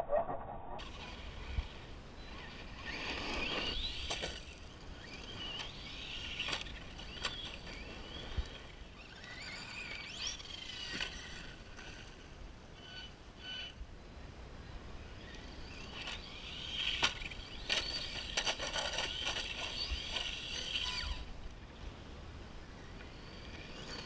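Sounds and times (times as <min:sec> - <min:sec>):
electric motors whining: 0:00.8 - 0:13.8, 0:14.8 - 0:21.4
toy trucks hitting dirt: 0:00.8 - 0:13.8, 0:15.2 - 0:21.3.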